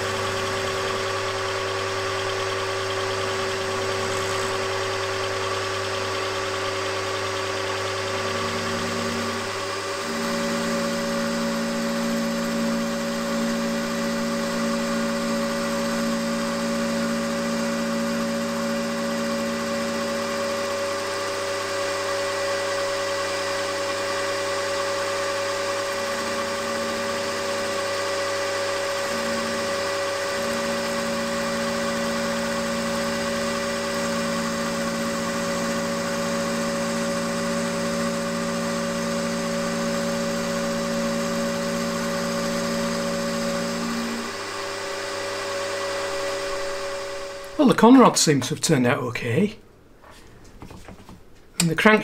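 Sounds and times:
milling machine motor whine: 0:00.0 - 0:48.0
low hum shifting in pitch: 0:42.2 - 0:48.0.

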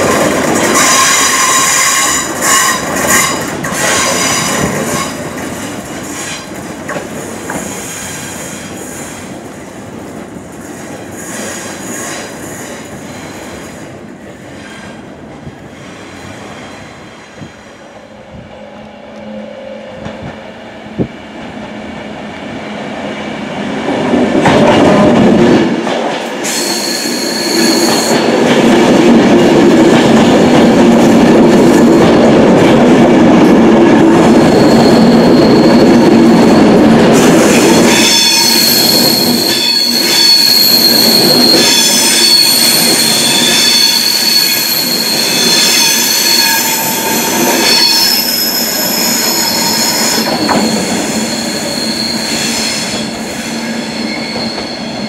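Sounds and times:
electric train passing close: 0:00.0 - 0:55.0
train wheels squealing: 0:00.7 - 0:05.3, 0:26.4 - 0:28.4, 0:34.2 - 0:55.0.

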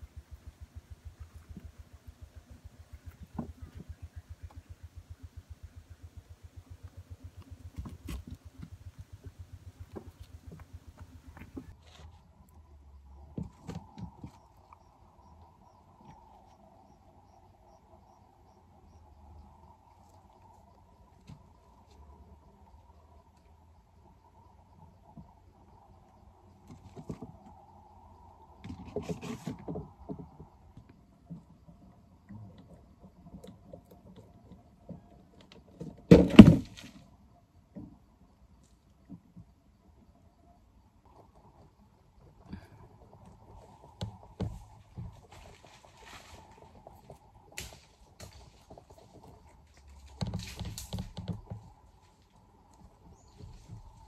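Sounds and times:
insect chirping: 0:00.0 - 0:54.0
steady outdoor hum: 0:00.0 - 0:54.0
rabbits scuffing on straw: 0:44.5 - 0:50.9.

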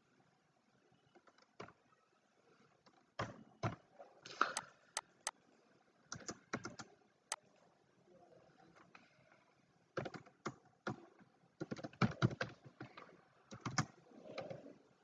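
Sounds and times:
computer keyboard keystrokes: 0:06.1 - 0:06.9, 0:10.0 - 0:13.9.

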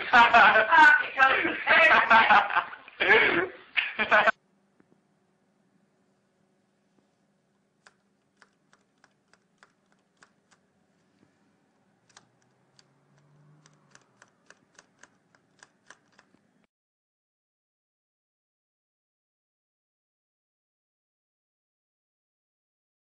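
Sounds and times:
faint irregular clicking: 0:07.5 - 0:16.5.

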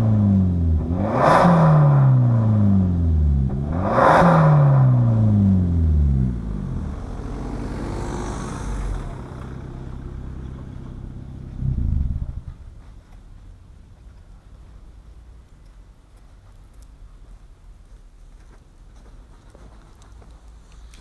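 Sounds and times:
diesel car engine idling: 0:05.8 - 0:14.7
car driving past: 0:06.0 - 0:12.8.

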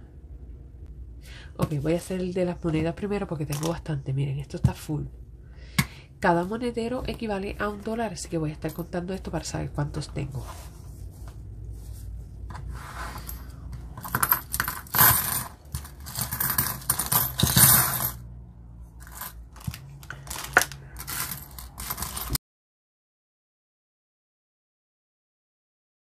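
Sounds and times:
coins clattering on a tabletop: 0:13.0 - 0:18.2, 0:19.0 - 0:22.4.

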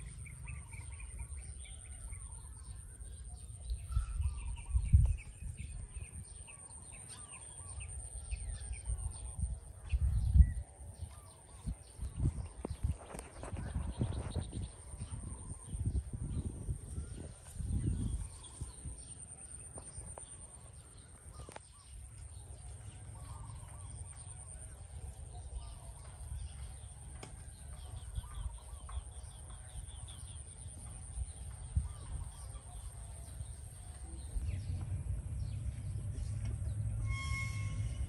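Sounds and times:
low rumble: 0:21.2 - 0:38.0
high-pitched whine: 0:31.8 - 0:38.0.

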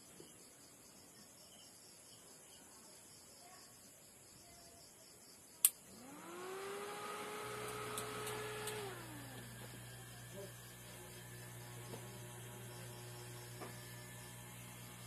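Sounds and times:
low mains hum: 0:00.0 - 0:15.0
small electric motor whirring: 0:05.8 - 0:15.0.

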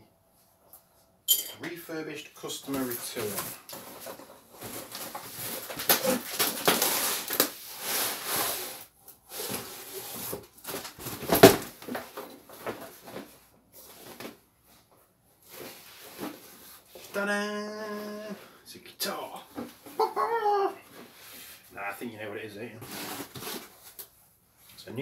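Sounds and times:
cardboard and fabric rustling: 0:02.7 - 0:18.4, 0:22.7 - 0:24.2.

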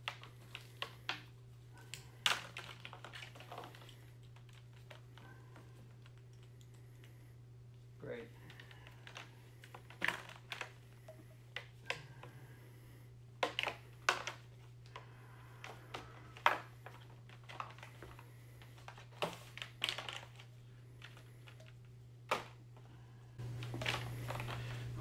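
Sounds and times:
steady low hum: 0:00.0 - 0:25.0
plastic packaging crinkling: 0:02.1 - 0:05.3, 0:15.6 - 0:21.7.

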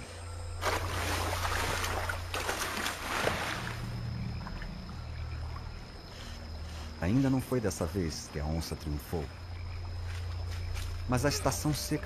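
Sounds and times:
low steady drone: 0:00.0 - 0:02.6
water splashing and sloshing: 0:00.5 - 0:06.6.

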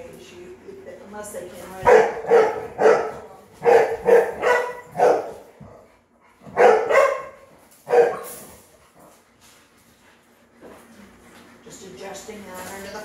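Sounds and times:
dog barking: 0:01.8 - 0:05.4, 0:06.5 - 0:08.4.

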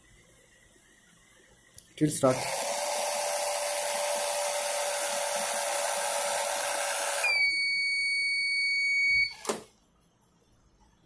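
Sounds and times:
small electric motor whirring: 0:02.3 - 0:07.5
high buzzer beep: 0:07.2 - 0:09.5.

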